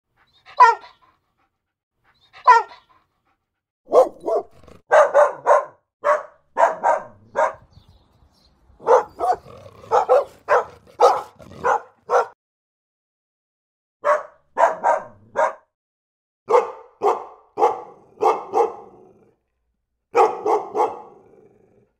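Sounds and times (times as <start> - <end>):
dog barking: 0.4 - 1.1, 2.3 - 2.9, 3.9 - 7.8, 8.8 - 12.4, 14.0 - 15.7, 16.5 - 19.3, 20.1 - 21.4.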